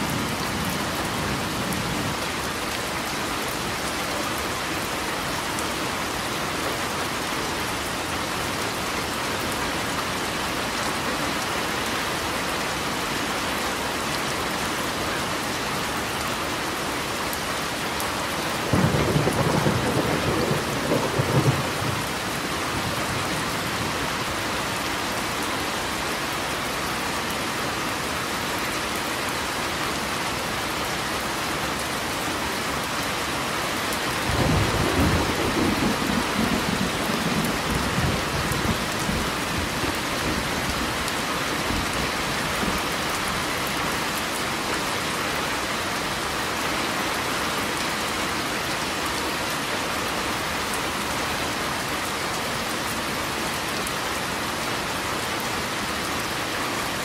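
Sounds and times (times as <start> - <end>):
steady rainfall: 0.0 - 57.0
thunder clap rumbling: 18.7 - 22.1.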